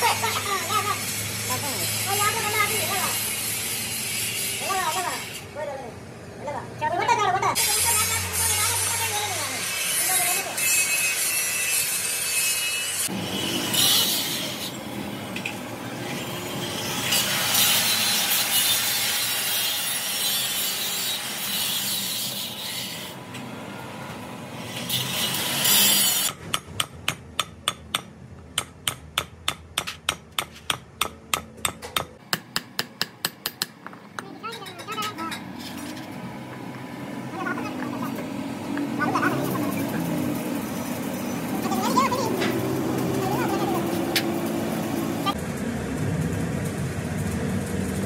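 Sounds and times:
hammer tapping metal: 26.3s - 35.5s
rough scraping and rubbing: 35.4s - 36.2s.

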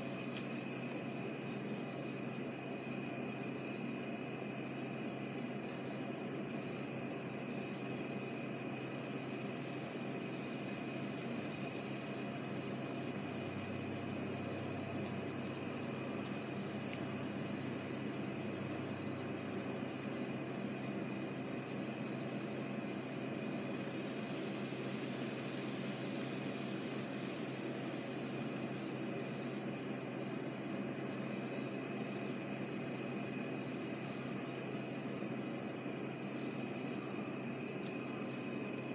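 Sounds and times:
high cricket chirp: 0.0s - 38.9s
insect chorus: 0.0s - 38.9s.

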